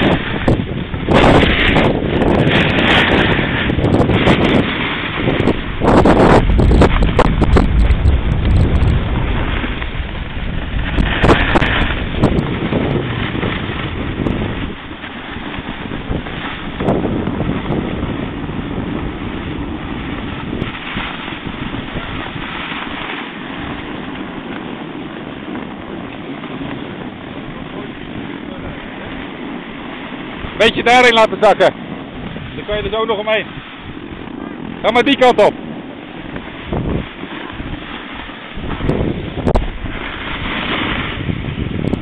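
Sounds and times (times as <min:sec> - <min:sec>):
wind buffeting microphone: 0:00.0 - 0:42.0.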